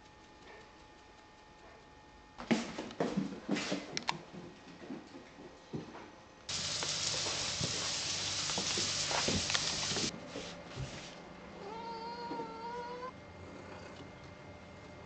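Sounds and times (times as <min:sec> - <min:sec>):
steady hiss: 0:06.5 - 0:11.0.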